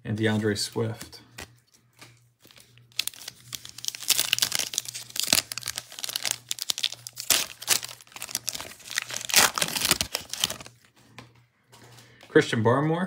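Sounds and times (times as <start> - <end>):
foil wrappers crinkling and tearing: 1.4 - 10.9.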